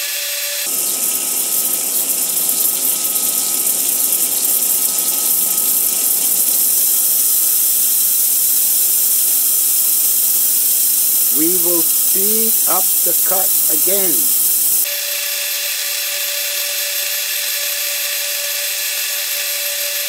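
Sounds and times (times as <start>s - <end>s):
spraying and splashing water: 0.7s - 14.9s.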